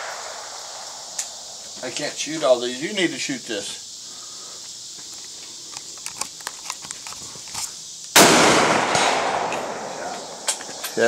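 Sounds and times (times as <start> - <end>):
rifle shot with echo: 0.0 - 1.3, 8.2 - 10.6.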